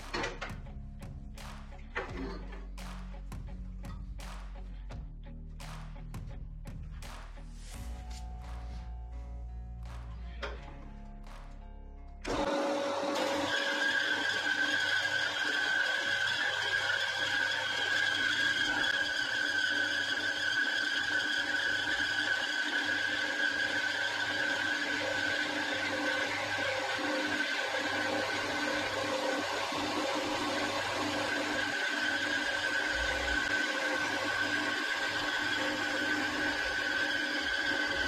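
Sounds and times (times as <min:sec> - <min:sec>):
bandsaw whine cutting pipe: 0:00.0 - 0:00.7, 0:12.2 - 0:38.0.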